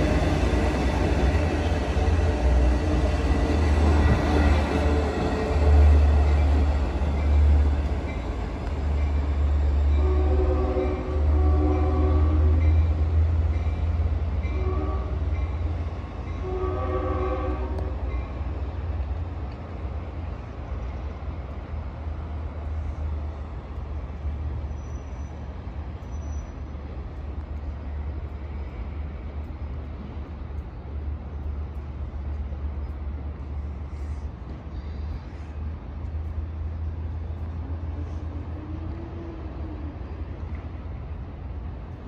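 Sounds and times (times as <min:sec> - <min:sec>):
low train rumble: 0:00.0 - 0:42.0
train chime horn: 0:09.2 - 0:13.1, 0:13.7 - 0:15.7, 0:16.3 - 0:18.6.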